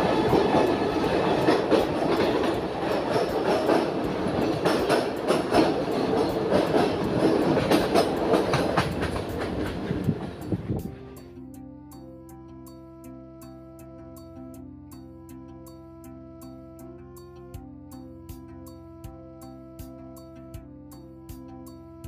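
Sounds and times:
train wheels rumbling and clacking: 0:00.0 - 0:11.2
soft background music: 0:00.0 - 0:22.0.

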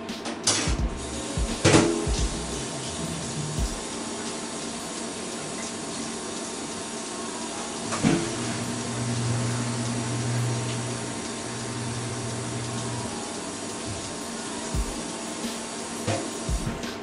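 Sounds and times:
steady low hum: 0:00.7 - 0:06.0
water running into a sink: 0:01.0 - 0:16.5.

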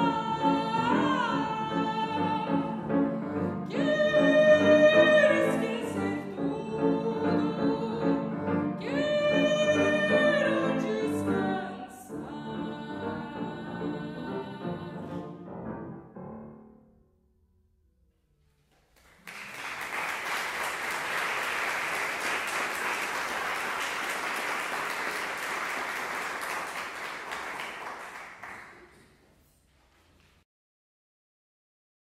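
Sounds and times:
audience applauding: 0:18.8 - 0:29.2.

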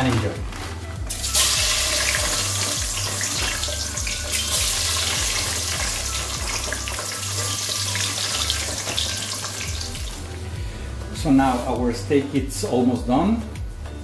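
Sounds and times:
fries deep-frying in oil: 0:01.1 - 0:10.2.

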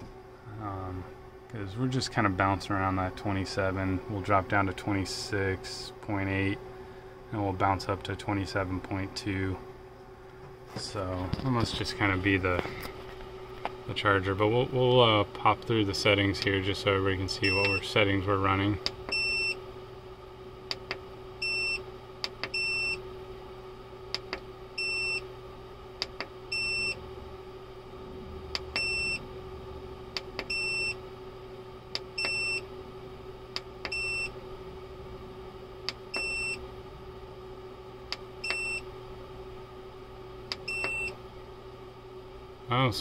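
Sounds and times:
steady hum: 0:00.0 - 0:43.0.

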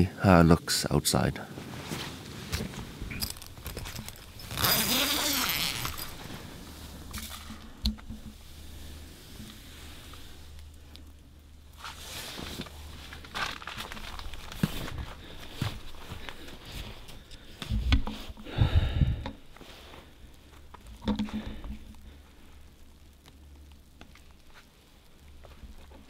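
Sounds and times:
fabric and clothing rustling: 0:01.4 - 0:18.5
tent zipper pulled open: 0:01.7 - 0:07.5, 0:11.8 - 0:14.6.

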